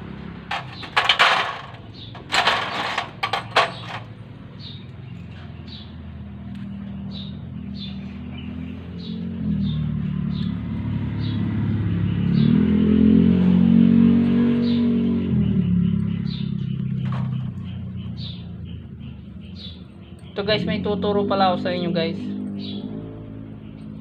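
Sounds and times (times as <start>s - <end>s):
engine hum: 0.0s - 24.0s
metal tools clinking: 0.5s - 4.2s.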